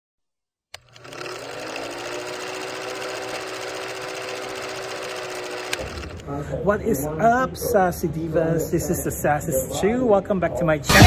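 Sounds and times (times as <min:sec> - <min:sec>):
film projector clatter: 0:00.8 - 0:06.2.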